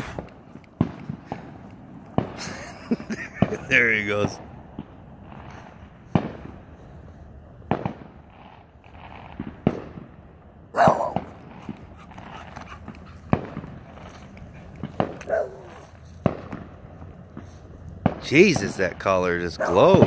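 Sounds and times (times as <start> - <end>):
fireworks bangs: 0.0 - 20.0
dog barking: 10.8 - 11.3, 15.2 - 15.9, 19.6 - 19.9.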